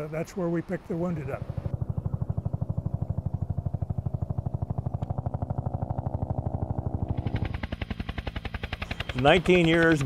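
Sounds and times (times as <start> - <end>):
helicopter rotor beating: 0.0 - 10.0.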